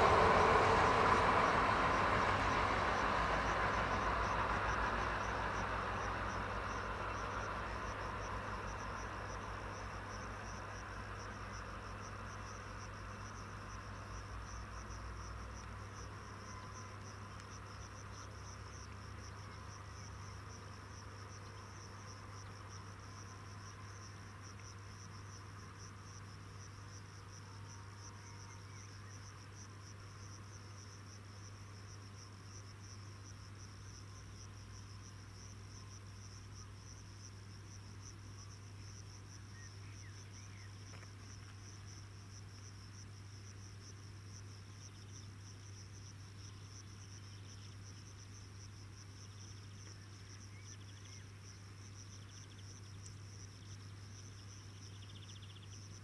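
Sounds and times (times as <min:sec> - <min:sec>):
low hum: 0:00.0 - 0:09.7
crickets trilling: 0:00.0 - 0:56.0.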